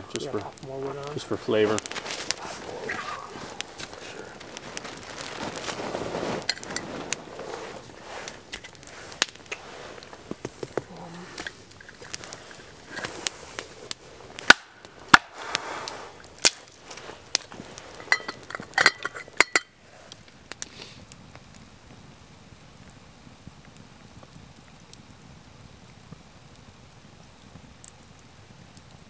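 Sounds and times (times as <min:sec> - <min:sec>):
campfire crackling and popping: 0:00.0 - 0:29.0
metal lid clinking on pot: 0:18.0 - 0:19.7.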